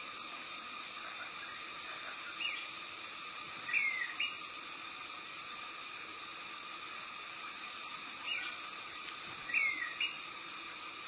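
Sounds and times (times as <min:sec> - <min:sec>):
steady high hiss: 0:00.0 - 0:11.0
bird call notes: 0:03.7 - 0:04.4, 0:09.5 - 0:10.2.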